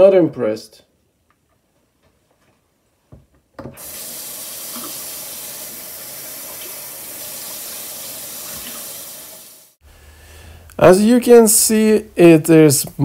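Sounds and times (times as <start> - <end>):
water running into a steel sink: 3.8 - 9.8.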